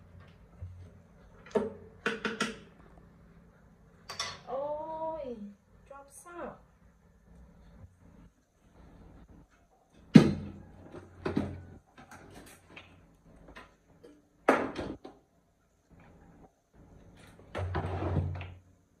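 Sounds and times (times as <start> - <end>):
kitchen knocks and clunks: 1.4 - 2.8, 10.0 - 15.2.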